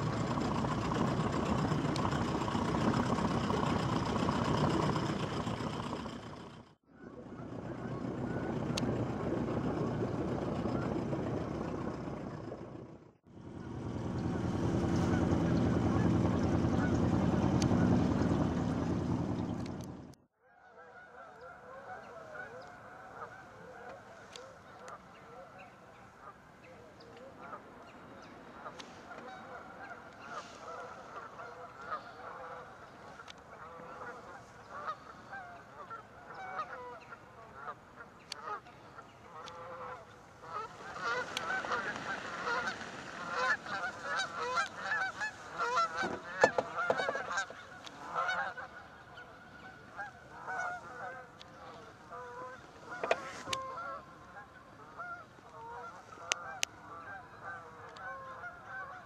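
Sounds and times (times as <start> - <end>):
splashing and wingbeats: 0.0 - 6.5, 13.6 - 20.1, 39.2 - 59.0
geese honking: 7.0 - 9.2, 13.5 - 18.7, 20.6 - 26.4, 27.1 - 59.0.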